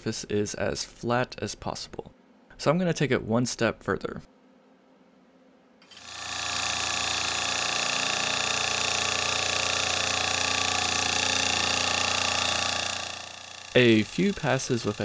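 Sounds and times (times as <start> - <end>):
milling machine whine: 5.9 - 15.0.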